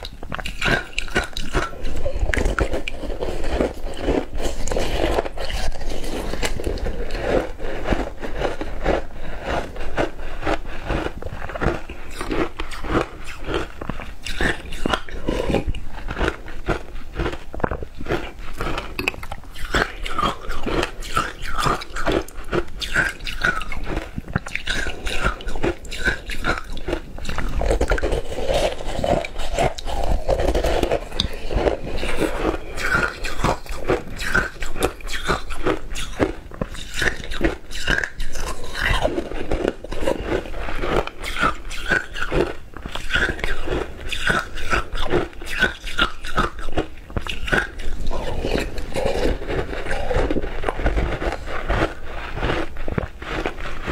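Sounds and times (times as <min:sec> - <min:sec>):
chewing crunchy ice: 0:00.0 - 0:53.9.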